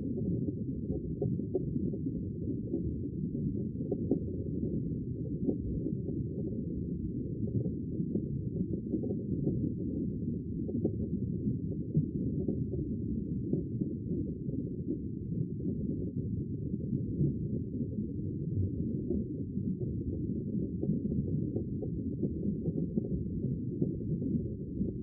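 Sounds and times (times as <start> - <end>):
faint underwater crackles: 0.0 - 25.0
underwater rumble of water: 0.0 - 25.0.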